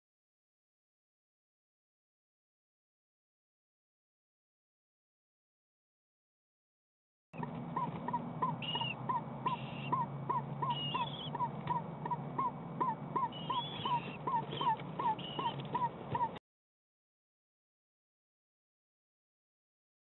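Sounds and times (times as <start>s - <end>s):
high squeaky calls: 7.4s - 16.4s
low hum: 7.4s - 16.4s
owlets chirping: 7.4s - 16.4s.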